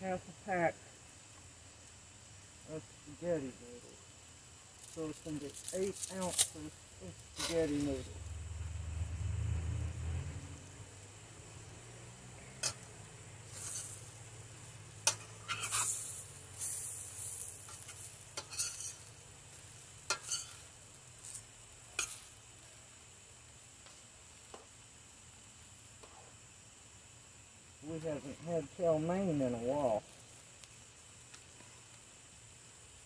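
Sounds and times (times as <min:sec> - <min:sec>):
low steady hum: 0:00.0 - 0:22.8
food sizzling in a pan: 0:00.0 - 0:33.0
metal spoon scraping a pan: 0:07.4 - 0:07.8, 0:12.5 - 0:12.9, 0:13.5 - 0:14.0, 0:15.0 - 0:19.1, 0:20.1 - 0:21.4, 0:22.0 - 0:22.3.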